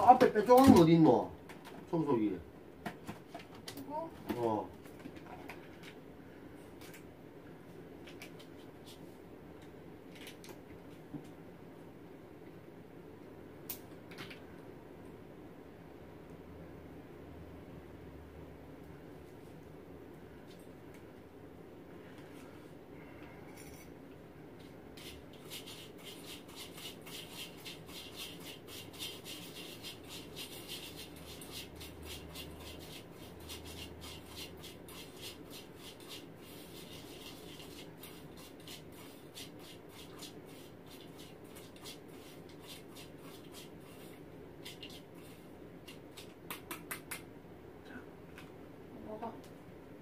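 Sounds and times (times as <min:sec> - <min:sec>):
rapid rubbing strokes: 0:24.6 - 0:46.3.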